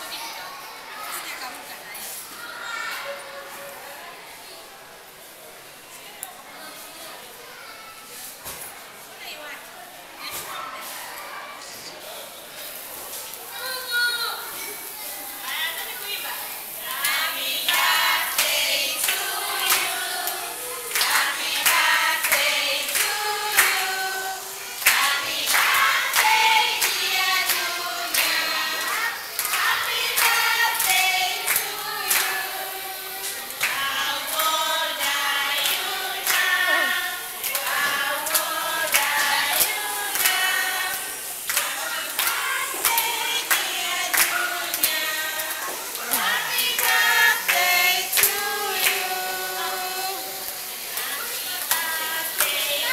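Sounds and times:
children and adults singing: 15.4s - 52.9s
hand clapping: 21.0s - 23.8s, 24.8s - 32.3s, 37.4s - 46.2s.

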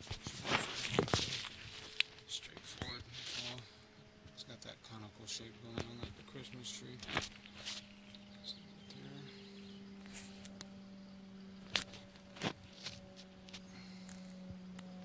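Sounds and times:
footsteps on dry grass: 0.0s - 3.6s, 5.6s - 8.4s, 11.6s - 14.1s
faint low hum: 0.0s - 15.0s.

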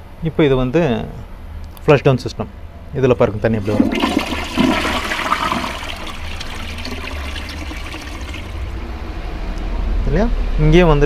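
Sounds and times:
water gurgling as bowl drains: 3.6s - 8.8s
toilet flushing: 3.6s - 9.0s.

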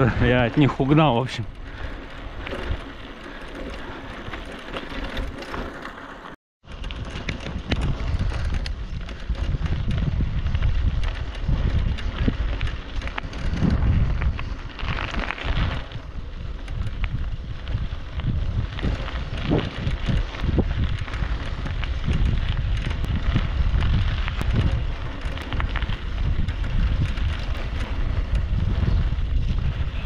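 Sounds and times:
wind buffeting microphone: 0.0s - 5.8s, 6.6s - 30.0s
bicycle tyre rumble on dirt: 0.0s - 30.0s.

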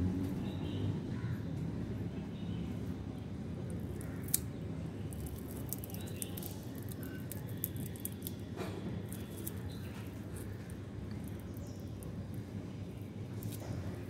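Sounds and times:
papery egg case crackling: 5.1s - 12.3s.

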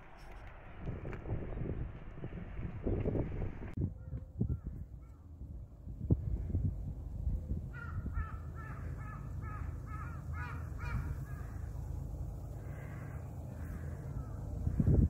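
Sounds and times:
crow cawing: 7.7s - 11.8s, 12.5s - 15.0s.

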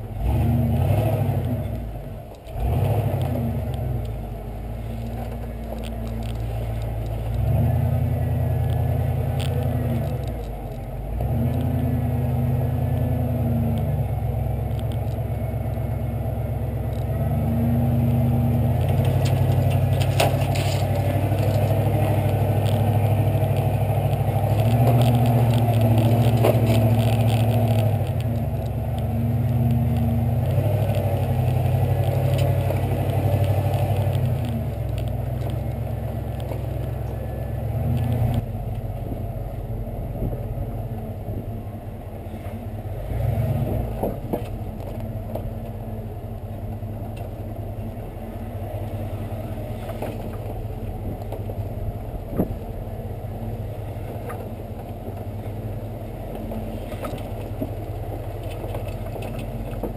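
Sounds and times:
truck engine running: 0.0s - 59.9s
truck knocks: 43.6s - 45.5s, 49.8s - 53.0s.

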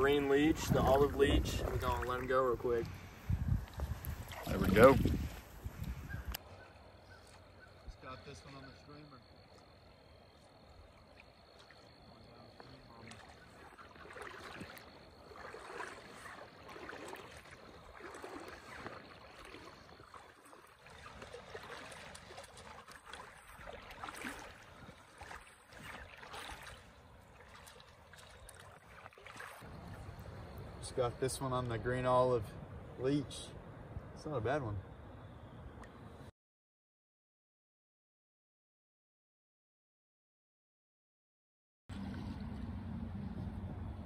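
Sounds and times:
river water splashing: 0.0s - 32.3s, 41.9s - 43.8s.

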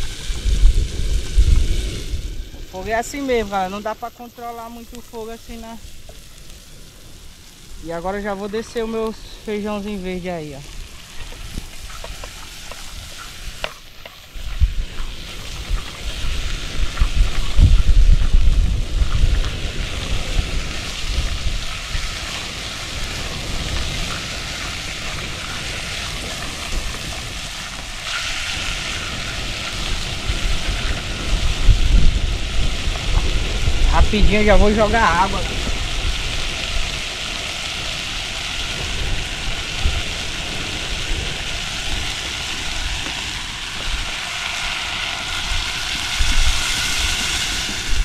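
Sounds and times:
low rumble: 0.0s - 11.9s
vegetables sizzling in a pan: 0.0s - 48.0s.

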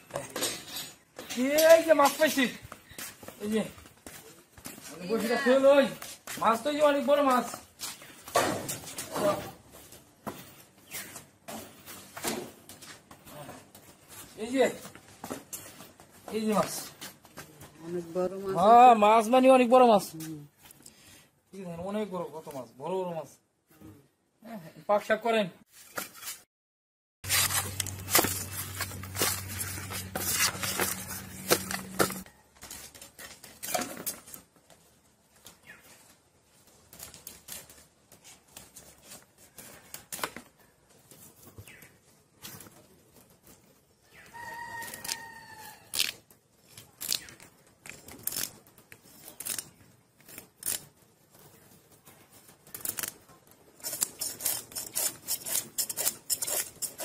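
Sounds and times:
fish scraping against a blade: 53.8s - 57.0s.

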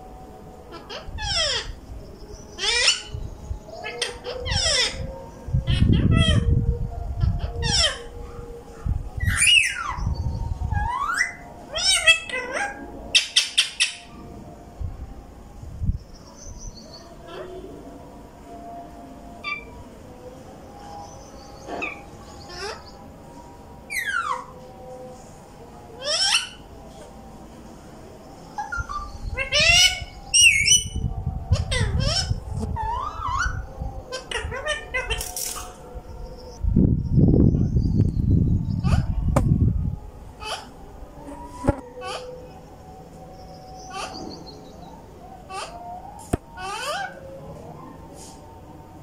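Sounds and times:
parakeets whistling: 0.7s - 3.2s, 3.8s - 5.0s, 9.2s - 10.1s, 10.8s - 14.1s, 23.9s - 24.5s, 26.0s - 26.7s, 28.5s - 35.7s, 46.6s - 47.2s
low rumble: 29.0s - 41.1s.

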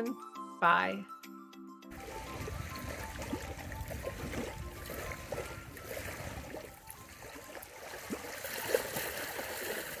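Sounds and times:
water lapping against rock: 2.0s - 10.0s.

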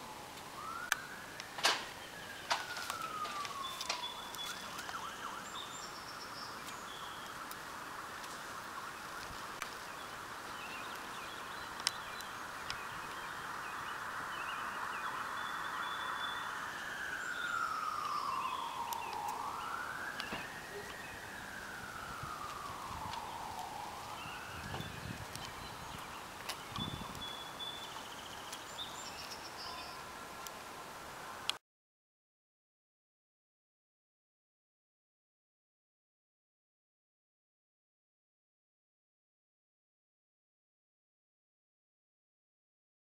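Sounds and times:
emergency vehicle siren: 0.0s - 28.0s.

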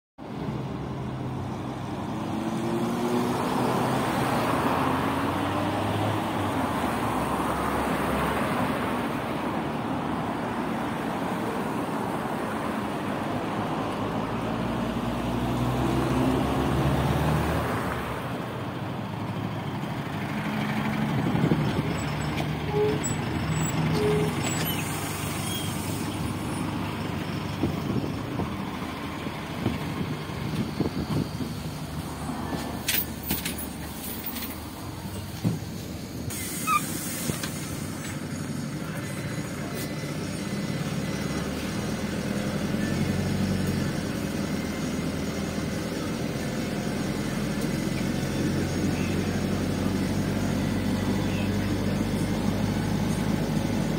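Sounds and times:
bus diesel engine: 0.2s - 53.9s
cars driving by: 0.2s - 53.9s
air brake hiss: 36.3s - 37.8s.

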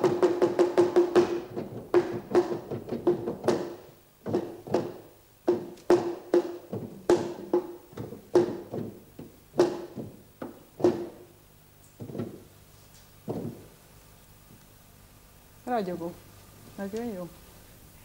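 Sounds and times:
drum struck with a stick: 0.0s - 11.3s.

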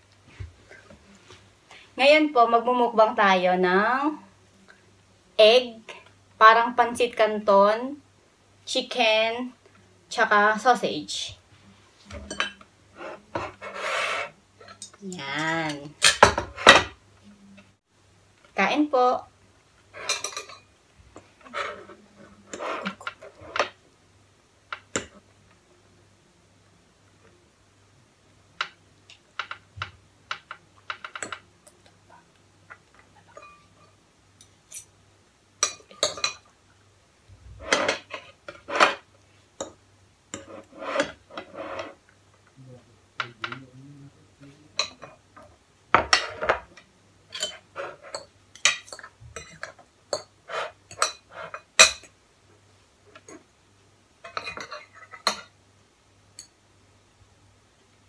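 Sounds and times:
cutlery clinking on plates: 12.1s - 12.7s, 20.0s - 20.7s, 33.3s - 34.0s, 35.6s - 36.5s, 37.6s - 39.0s, 44.8s - 52.2s, 54.2s - 55.6s.

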